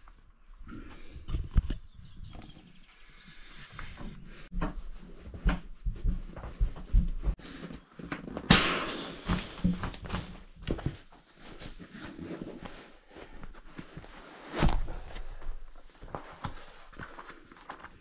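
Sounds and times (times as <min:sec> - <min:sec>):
nylon rustling: 0:09.2 - 0:18.0.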